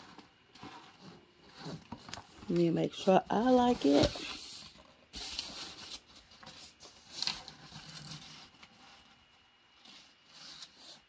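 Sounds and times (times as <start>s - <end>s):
tissue paper rustling: 0.0s - 11.0s.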